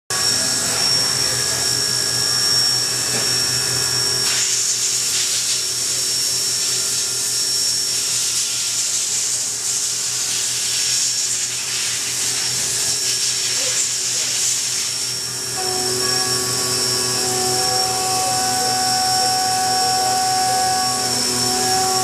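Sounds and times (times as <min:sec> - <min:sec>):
coolant spray hiss: 0:04.3 - 0:06.8, 0:08.0 - 0:15.2
milling spindle whine: 0:15.1 - 0:22.0.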